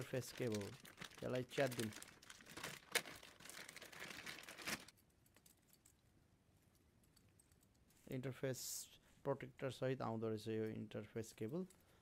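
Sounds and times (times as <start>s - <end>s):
plastic bag tearing: 0.0s - 4.9s
plastic bag crinkling: 0.0s - 5.0s.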